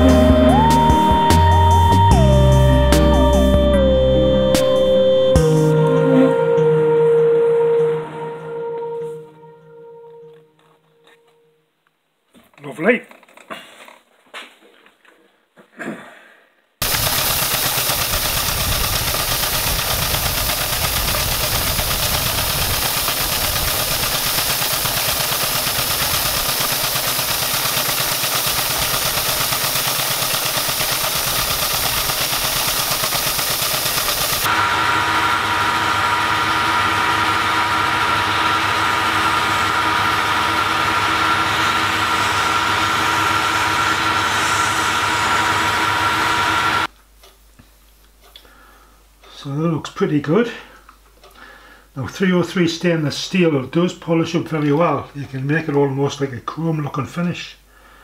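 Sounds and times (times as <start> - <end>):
held tones: 16.8 - 46.9
steam engine hissing: 16.8 - 46.9.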